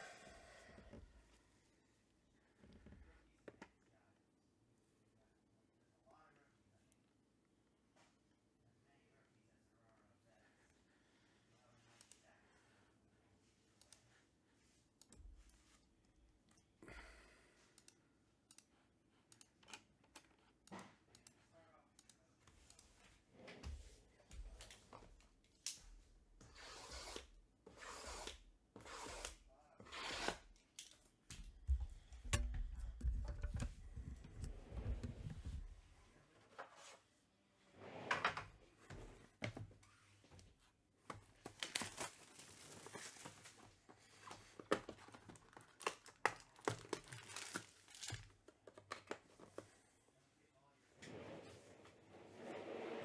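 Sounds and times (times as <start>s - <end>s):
packaging tearing and crinkling: 45.4s - 48.3s.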